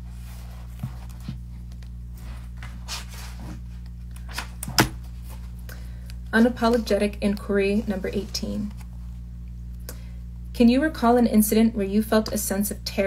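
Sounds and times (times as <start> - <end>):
steady low hum: 0.0 - 13.0
book pages rustling: 0.1 - 5.6.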